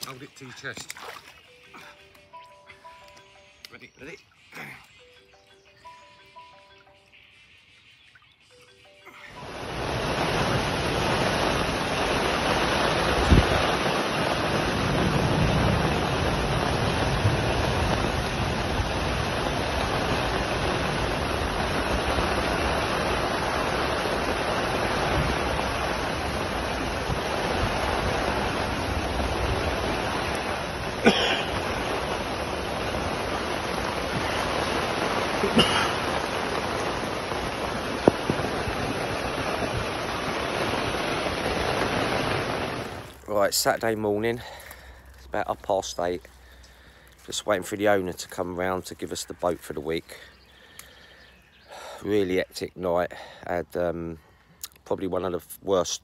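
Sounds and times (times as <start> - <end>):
heavy rain: 9.1 - 52.1.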